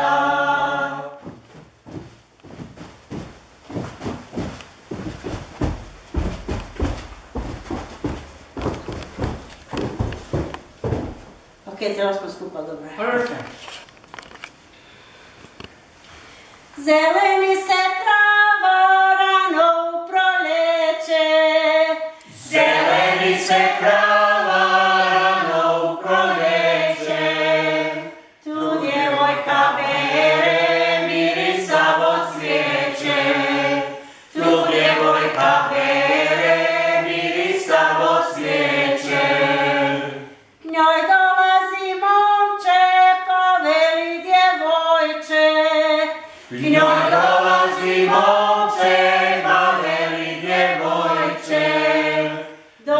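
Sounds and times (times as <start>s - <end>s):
group singing unaccompanied: 0.0s - 1.4s, 17.6s - 44.6s, 45.2s - 52.9s.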